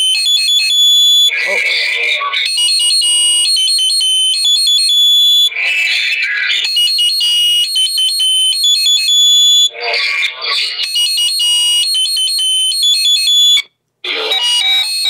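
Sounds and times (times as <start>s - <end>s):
voice-like recorder playback: 0.0s - 15.0s
shrill electronic melody: 14.1s - 15.0s.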